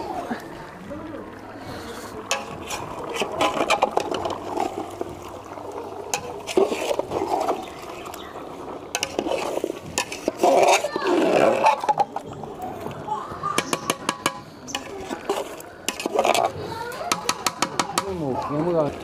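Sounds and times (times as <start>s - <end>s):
wet sloshing: 0.0s - 19.0s
metal spatula scraping pot: 2.2s - 4.9s, 6.1s - 8.1s, 8.9s - 12.3s, 13.6s - 18.1s.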